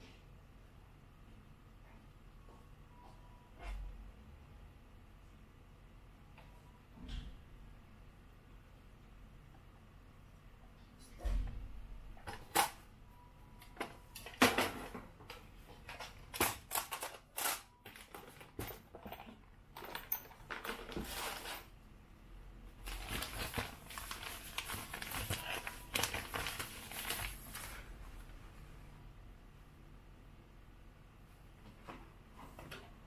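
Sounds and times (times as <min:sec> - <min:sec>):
rustling: 0:22.8 - 0:28.3.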